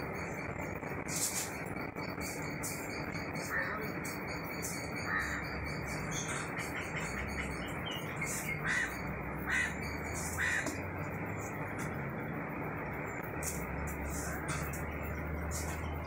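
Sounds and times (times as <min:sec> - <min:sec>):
bird calling: 0:05.0 - 0:10.8.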